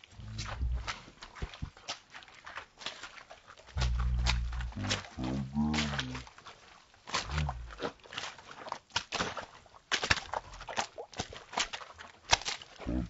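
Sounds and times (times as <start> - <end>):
boots splashing through mud: 0.0 - 13.0.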